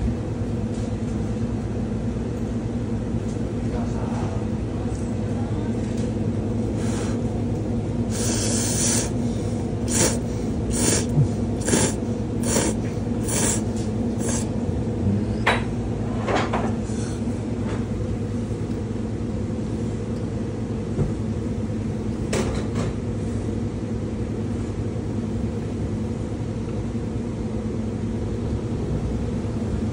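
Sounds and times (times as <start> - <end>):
steady low hum: 0.0 - 29.9
person slurping noodles: 8.1 - 15.4.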